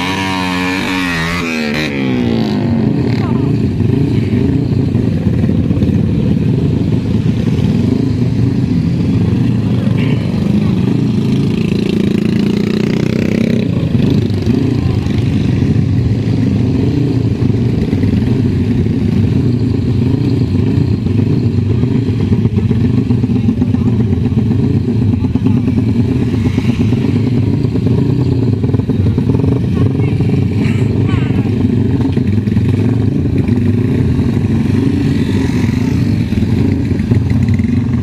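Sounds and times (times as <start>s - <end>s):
motorcycle engines idling and revving: 0.0s - 38.0s.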